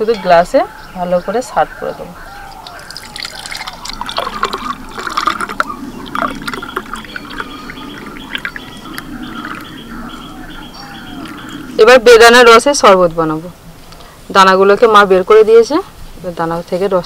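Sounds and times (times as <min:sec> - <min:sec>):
juice pouring into a glass: 0:02.7 - 0:09.6.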